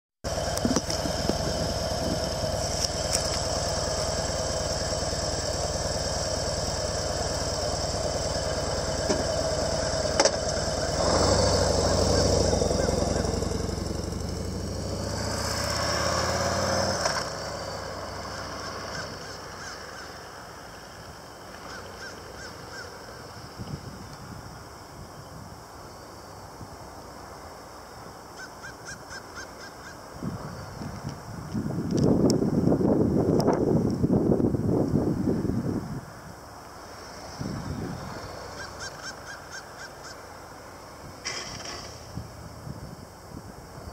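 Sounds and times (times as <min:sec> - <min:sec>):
motorcycle engine running: 0:00.3 - 0:19.8, 0:36.9 - 0:39.5.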